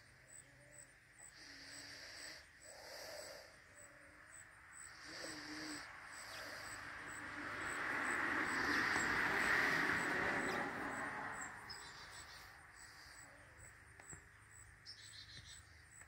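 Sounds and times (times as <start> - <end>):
insects ticking: 0.0 - 16.0
vehicle passing: 4.2 - 13.8.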